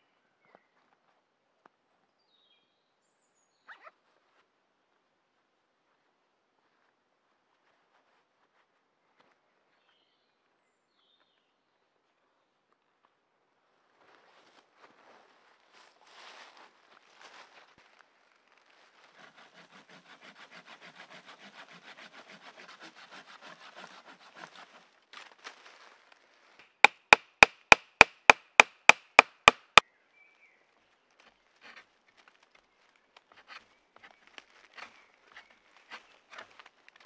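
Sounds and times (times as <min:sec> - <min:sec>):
hand saw cutting branch: 0:19.1 - 0:25.0, 0:26.6 - 0:29.8
sharp ringing knocks: 0:26.8 - 0:29.8
faint snaps and rustles: 0:31.1 - 0:37.0.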